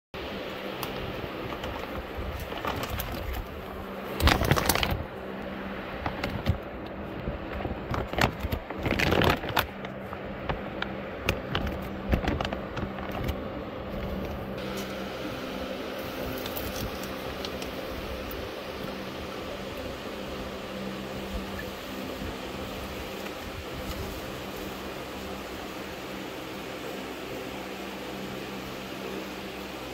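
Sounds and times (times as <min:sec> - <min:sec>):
steady background hum: 0:00.2 - 0:29.9
plastic bags crinkling: 0:01.4 - 0:14.6.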